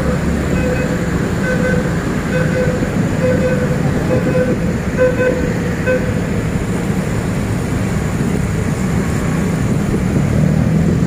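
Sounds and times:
busy street traffic: 0.0s - 11.0s
short beeps: 0.5s - 6.2s.

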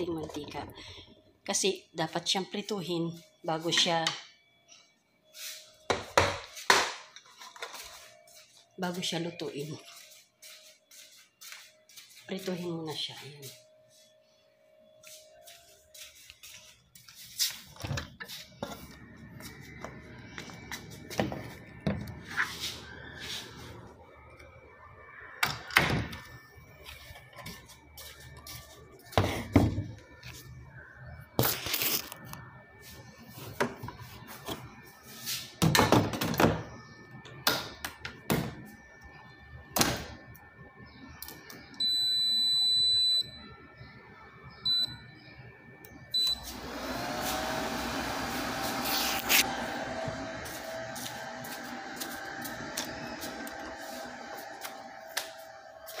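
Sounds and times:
air fryer beeps: 17.8s - 56.0s
air fryer fan whirring: 46.1s - 56.0s.

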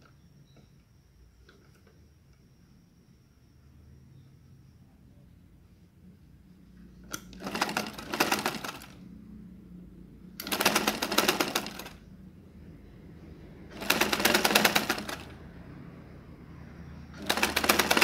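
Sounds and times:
sewing machine needle rattling: 7.1s - 9.0s, 10.4s - 12.0s, 13.7s - 15.3s, 17.2s - 18.0s.

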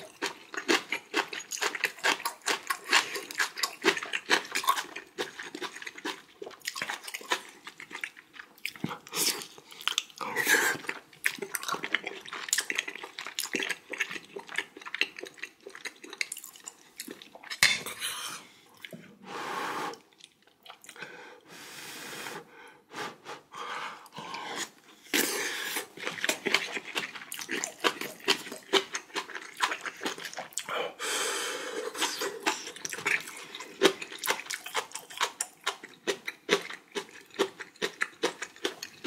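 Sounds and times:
wet chewing: 0.0s - 17.6s, 24.6s - 30.7s, 31.8s - 39.0s
loud breaths: 30.7s - 32.0s.

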